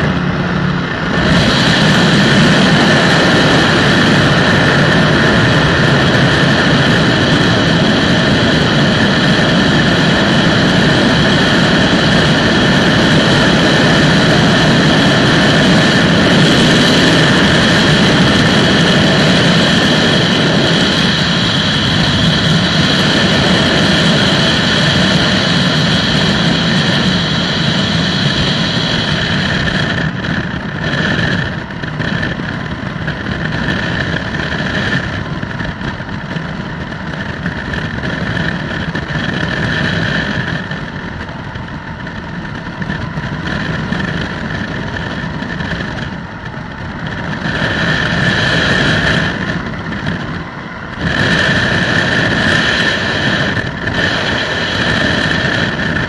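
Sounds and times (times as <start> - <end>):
aircraft engine droning: 0.0 - 56.0
rush of air: 0.0 - 56.0.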